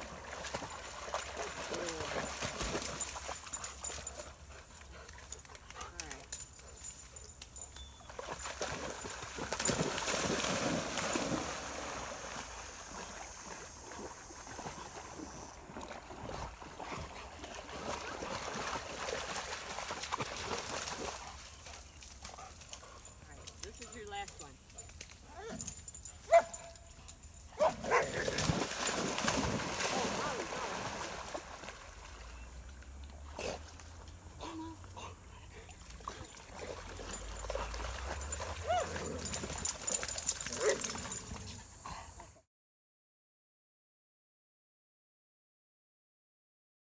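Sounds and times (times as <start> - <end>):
dog splashing in water: 0.0 - 4.2, 8.1 - 22.6, 27.7 - 34.0, 35.6 - 41.4
dog swimming and wading: 0.0 - 42.5.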